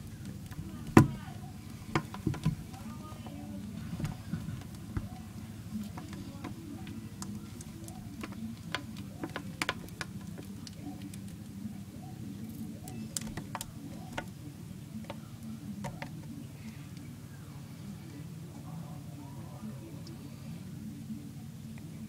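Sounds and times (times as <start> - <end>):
low steady hum: 0.0 - 22.0
light clicks and taps on plastic: 0.1 - 11.5, 12.5 - 14.4, 15.0 - 17.1.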